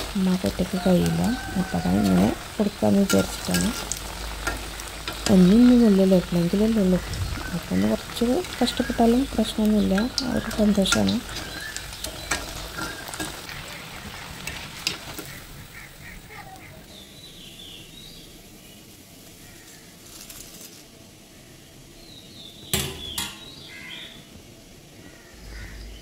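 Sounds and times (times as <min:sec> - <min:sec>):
food sizzling in oil: 0:00.0 - 0:24.2
spoon scraping a metal pan: 0:03.1 - 0:05.4, 0:10.0 - 0:13.6
faint bird calls: 0:09.8 - 0:17.9, 0:19.3 - 0:20.2, 0:22.6 - 0:24.3, 0:25.0 - 0:26.0.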